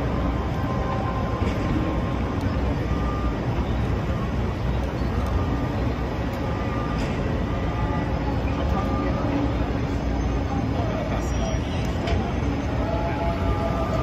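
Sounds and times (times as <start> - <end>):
low rumble of traffic: 0.0 - 14.0.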